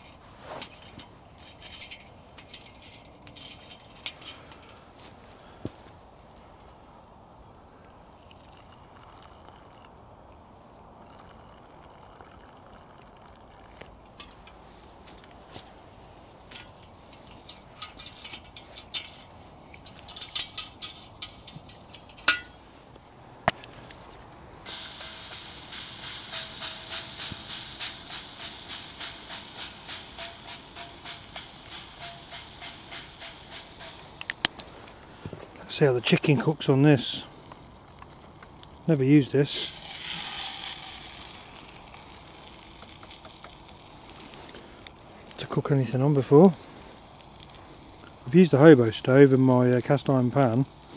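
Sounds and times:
metal cookware clinking: 16.6s - 22.6s, 28.4s - 34.0s
pulsing hiss from saucepan: 24.6s - 50.9s.

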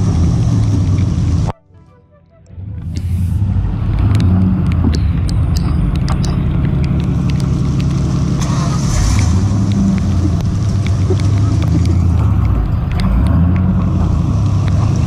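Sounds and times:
tyres spinning through mud: 0.0s - 1.5s, 2.8s - 15.0s
truck engine under throttle: 0.0s - 1.6s, 2.4s - 15.0s
sharp ticks: 3.9s - 15.0s.

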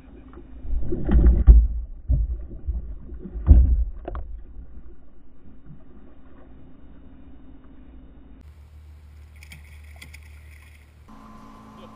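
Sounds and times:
thumps against kayak: 1.0s - 4.4s
fish thrashing and splashing: 9.3s - 11.0s.

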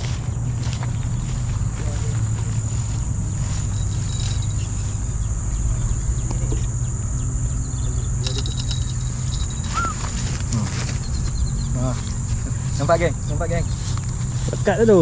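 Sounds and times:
insects trilling: 0.0s - 15.0s
low steady rumble: 0.0s - 15.0s
short chirps: 9.5s - 10.2s.

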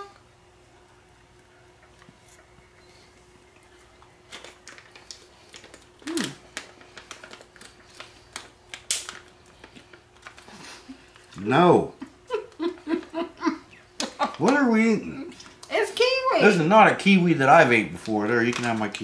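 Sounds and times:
person humming mm: 6.0s - 6.4s.

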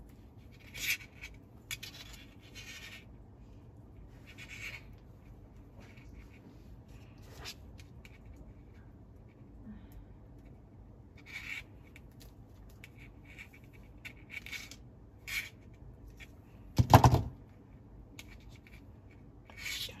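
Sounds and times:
rustling and scraping from handling: 4.0s - 8.8s.

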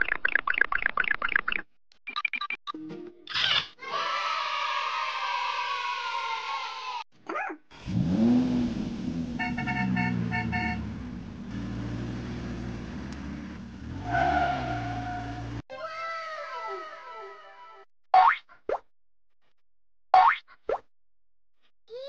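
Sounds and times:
car engine starting and running: 7.7s - 15.6s
car horn toots: 9.3s - 11.2s.

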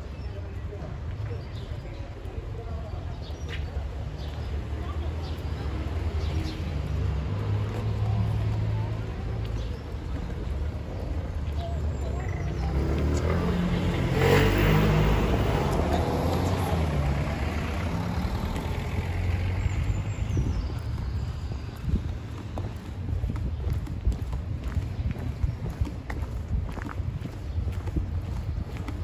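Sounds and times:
vehicle passing close: 12.3s - 20.6s
car engines at low speed: 12.6s - 29.0s.

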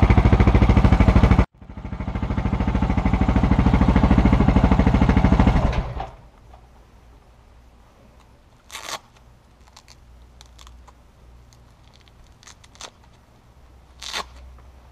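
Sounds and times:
low steady hum: 0.0s - 14.9s
handling clicks and rustles: 7.8s - 14.9s.

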